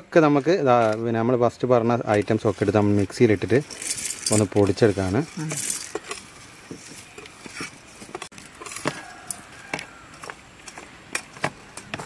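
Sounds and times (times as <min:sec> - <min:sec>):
seeds clicking into metal jar: 0:03.5 - 0:06.3.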